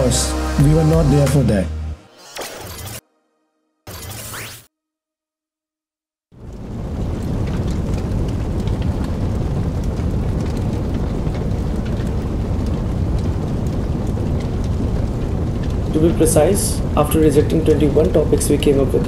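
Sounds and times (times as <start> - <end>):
fire crackles: 6.3 - 19.0
low rumble of flames: 6.4 - 19.0.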